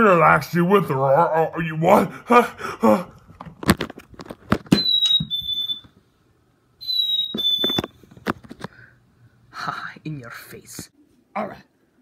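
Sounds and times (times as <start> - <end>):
high-pitched whistle-like tones: 4.7 - 5.9, 6.8 - 7.9.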